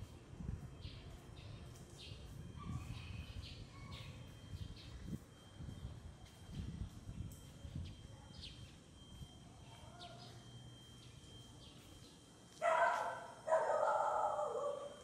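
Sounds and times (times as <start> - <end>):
dog barking: 12.6 - 15.0.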